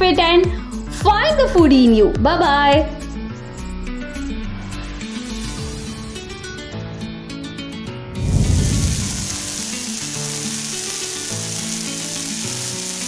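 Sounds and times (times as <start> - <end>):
background music: 0.0 - 13.0
low whoosh: 7.9 - 9.6
frying pan sizzling: 8.2 - 13.0.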